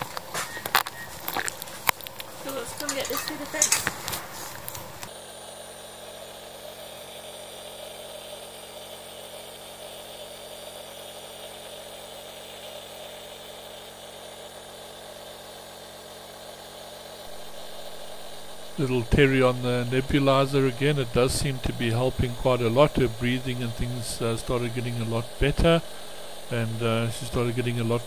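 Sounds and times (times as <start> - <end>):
handling rustles and knocks: 0.0 - 5.1
nebulizer compressor humming: 0.0 - 9.1, 10.7 - 28.0.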